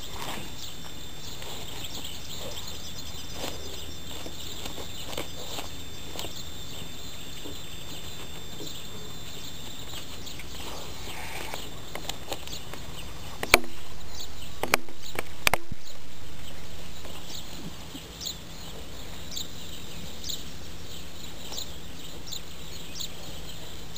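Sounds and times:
sharp crunches: 0:00.0 - 0:08.8, 0:09.7 - 0:18.9.

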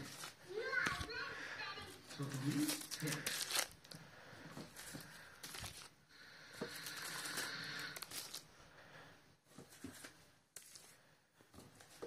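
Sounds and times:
plastic sleeves crinkling: 0:00.0 - 0:04.0, 0:04.7 - 0:06.0, 0:06.6 - 0:08.5, 0:09.7 - 0:11.0.

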